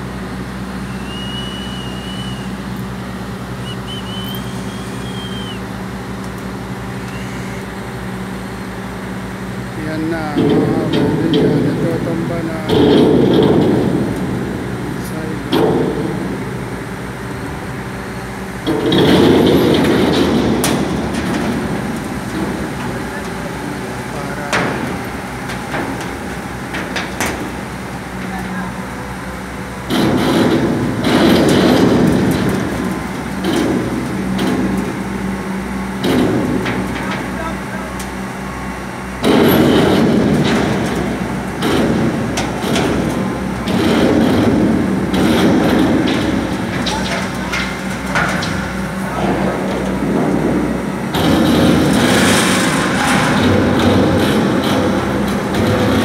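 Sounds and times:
crane engine running: 0.0s - 56.0s
grinding rumble of toppling silo: 0.0s - 56.0s
steel knocks and creaks: 18.6s - 28.6s, 39.2s - 56.0s.

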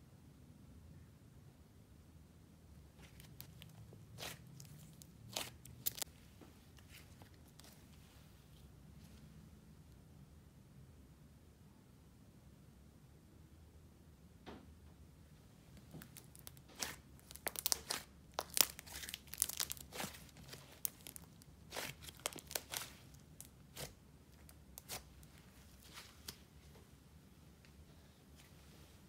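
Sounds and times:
sticky slime crackling: 3.0s - 6.1s, 15.8s - 26.4s.

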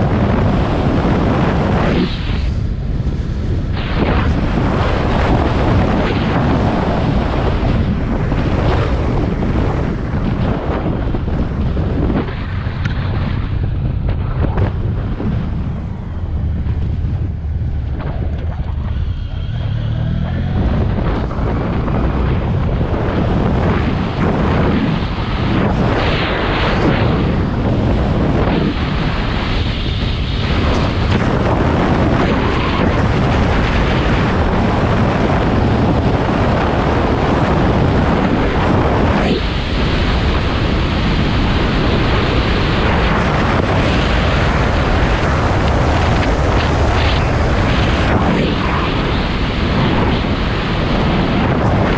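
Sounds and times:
road noise: 0.0s - 51.9s
wind rush on microphone: 0.0s - 51.9s
motorcycle engine running: 13.5s - 23.6s.

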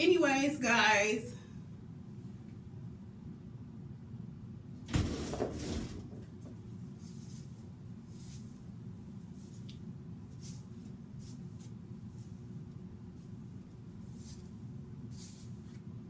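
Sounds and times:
low room hum: 0.0s - 16.0s
hair and sleeves rustling: 6.9s - 15.9s.

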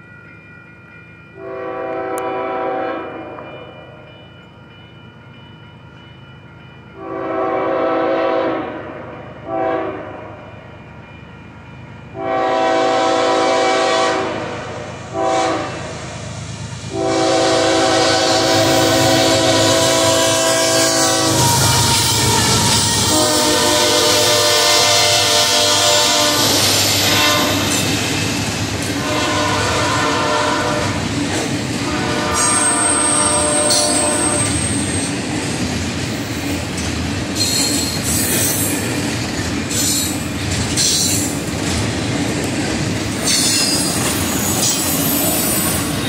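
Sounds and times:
train rumbling: 0.0s - 46.0s
locomotive horn blasts: 1.4s - 3.5s, 7.0s - 10.4s, 12.2s - 16.0s, 16.9s - 27.7s, 29.0s - 31.0s, 31.8s - 34.6s.

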